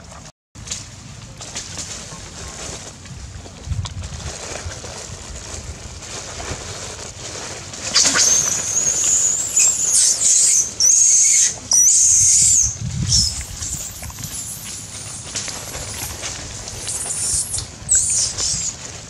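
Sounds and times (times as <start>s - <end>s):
young monkey screaming: 7.9s - 16.2s, 16.8s - 18.8s.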